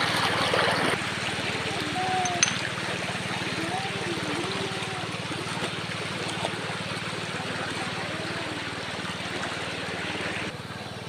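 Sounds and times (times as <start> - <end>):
stream running over rocks: 0.0 - 11.0.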